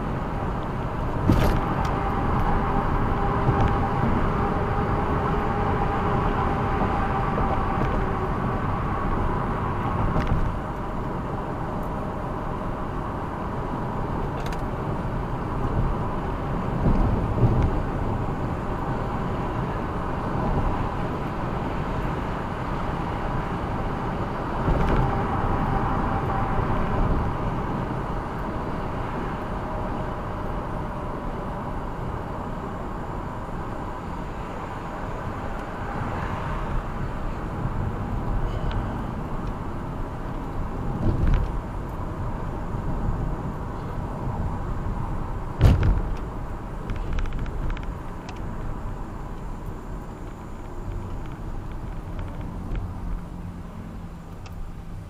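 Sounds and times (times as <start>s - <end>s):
car road and engine noise: 0.0s - 55.0s
car bumps: 1.2s - 1.7s, 45.6s - 46.3s.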